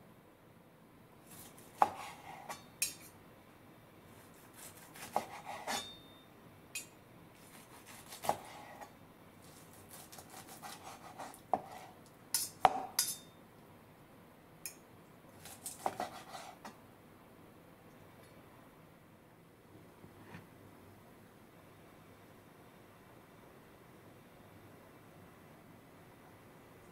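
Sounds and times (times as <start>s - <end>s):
knife slicing meat: 1.3s - 3.1s, 4.2s - 6.0s, 7.4s - 13.1s, 15.4s - 16.7s.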